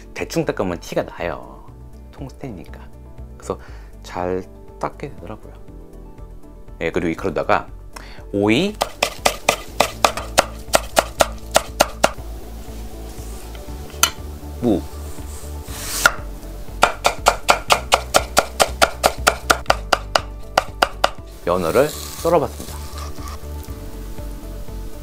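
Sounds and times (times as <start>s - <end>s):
knife chopping on wooden board: 8.8s - 12.2s, 16.0s - 21.2s.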